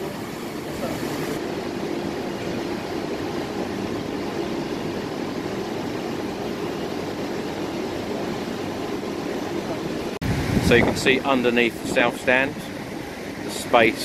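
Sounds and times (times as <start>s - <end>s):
construction machinery drone: 0.0s - 14.0s.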